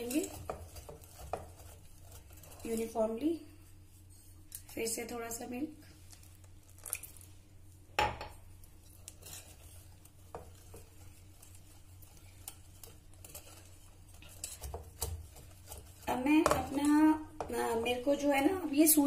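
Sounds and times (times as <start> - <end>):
whisk scraping and tapping bowl: 0.0 - 3.4, 8.7 - 19.0.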